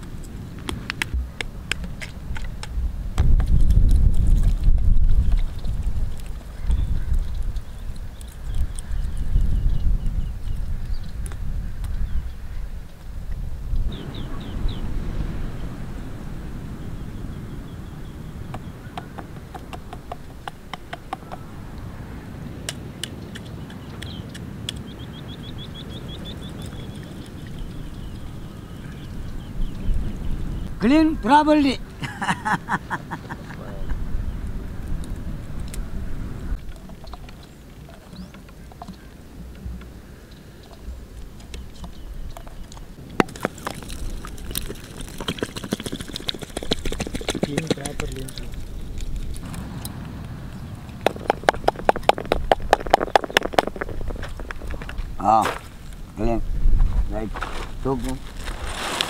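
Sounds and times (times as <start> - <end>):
sharp clicks and wet crackles: 0.0 - 12.0, 22.6 - 25.1, 26.1 - 30.2, 34.4 - 35.9, 36.5 - 56.0
bird chirping: 13.9 - 15.8, 22.8 - 31.4, 37.1 - 39.1, 41.4 - 43.0.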